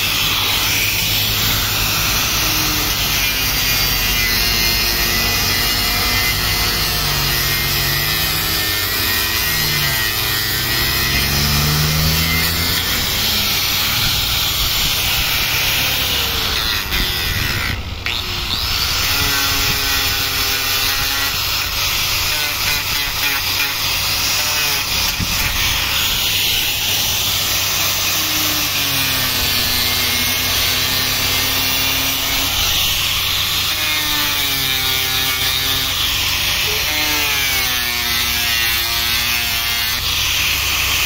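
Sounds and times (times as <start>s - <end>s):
angle grinder on wood: 0.0s - 41.0s.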